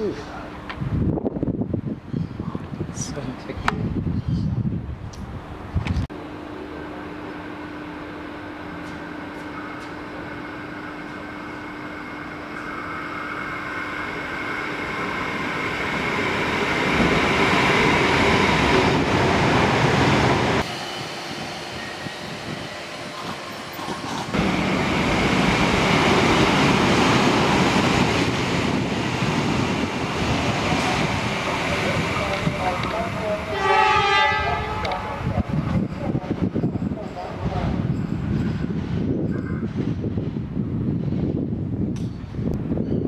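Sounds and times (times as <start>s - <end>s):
electric train passing: 5.5s - 43.0s.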